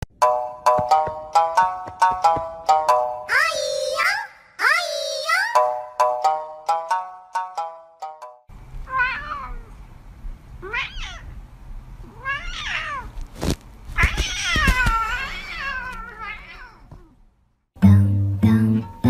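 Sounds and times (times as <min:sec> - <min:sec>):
cat meowing: 0:08.9 - 0:09.7, 0:10.6 - 0:11.4, 0:12.0 - 0:13.2, 0:14.0 - 0:17.2.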